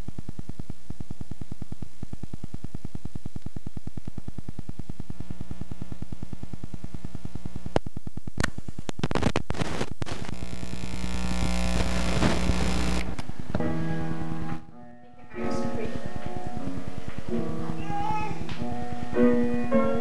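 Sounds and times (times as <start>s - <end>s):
electrical hum and buzz: 0.0s - 20.0s
noisy crackle and hiss: 0.0s - 20.0s
sharp clicks: 11.0s - 13.6s.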